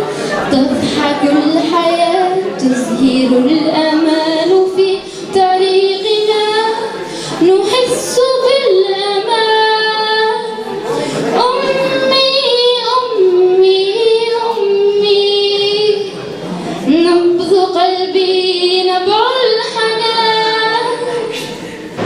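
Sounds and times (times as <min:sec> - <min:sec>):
girl singing into a microphone: 0:00.0 - 0:16.2, 0:16.8 - 0:21.6
singer breathing: 0:05.0 - 0:05.4, 0:06.9 - 0:07.4, 0:10.8 - 0:11.4.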